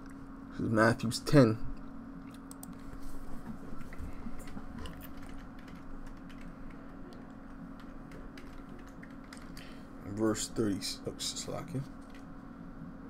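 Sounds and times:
computer keyboard typing: 0:04.4 - 0:09.6.

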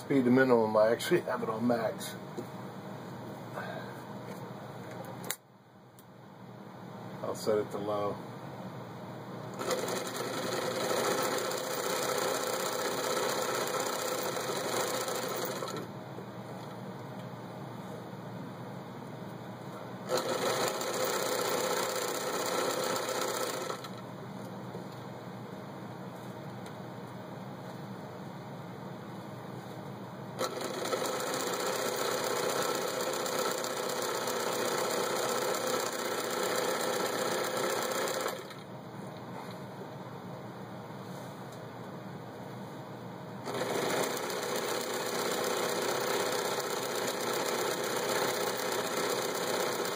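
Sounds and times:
sewing machine running: 0:09.5 - 0:15.9, 0:20.1 - 0:24.0, 0:30.4 - 0:38.6, 0:43.4 - 0:49.9.

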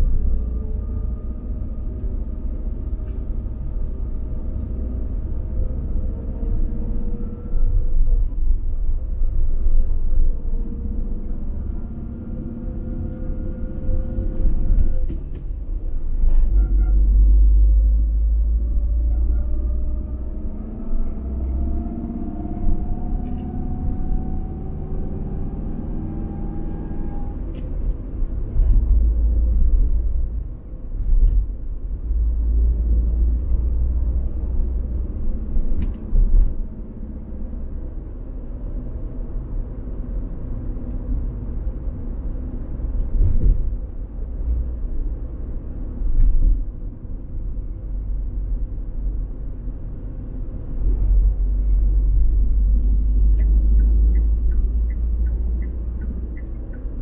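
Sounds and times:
car road and engine rumble: 0:00.0 - 0:57.0.

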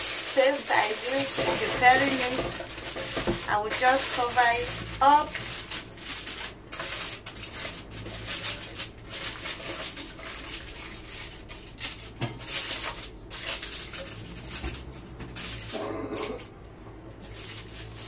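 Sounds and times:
aluminium foil crinkling: 0:00.0 - 0:18.0.

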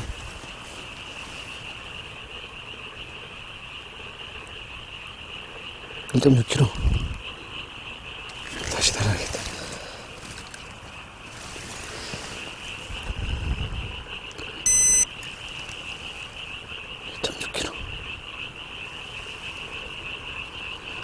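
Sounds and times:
frogs calling: 0:00.0 - 0:21.0
short electronic beep: 0:14.6 - 0:15.1.

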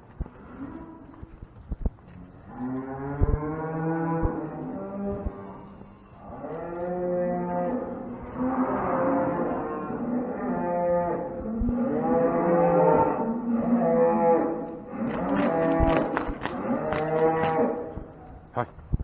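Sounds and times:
cattle mooing: 0:06.2 - 0:17.9.

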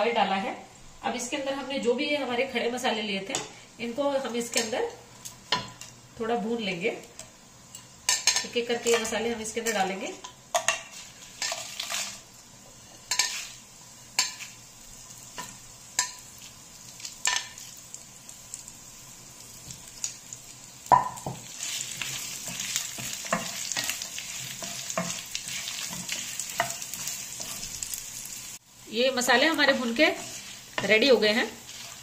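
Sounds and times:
spices sizzling: 0:00.0 - 0:32.0
spices tapping into pan: 0:20.8 - 0:27.8.

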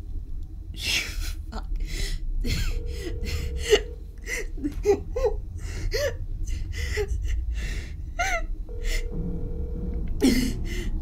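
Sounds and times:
low steady drone: 0:00.0 - 0:11.0
woman crying: 0:02.4 - 0:09.2, 0:10.2 - 0:11.0
phone tone: 0:02.7 - 0:04.0, 0:08.7 - 0:10.1.

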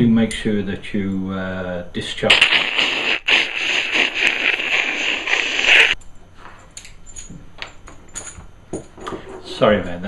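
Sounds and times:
electric arc crackling zap: 0:02.2 - 0:06.0.

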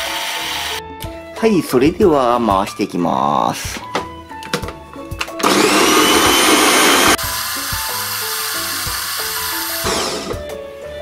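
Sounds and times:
background music: 0:00.0 - 0:11.0
food processor motor whirring: 0:05.4 - 0:10.4.

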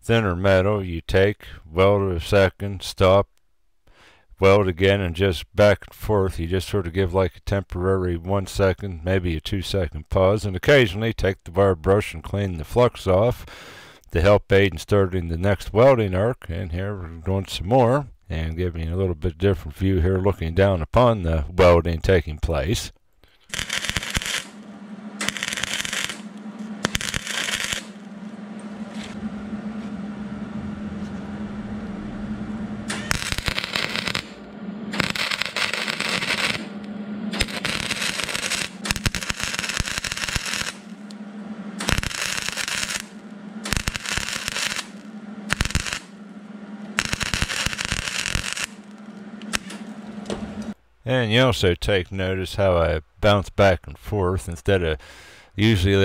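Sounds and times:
steady low hum: 0:00.0 - 0:56.0
crackling welding arc: 0:23.4 - 0:29.2, 0:32.9 - 0:46.3, 0:46.9 - 0:50.7.

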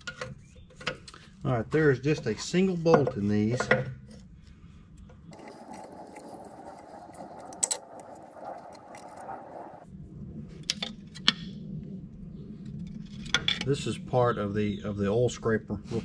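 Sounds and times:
low hum: 0:04.2 - 0:15.0
metal parts clinking and scraping: 0:05.4 - 0:08.6.

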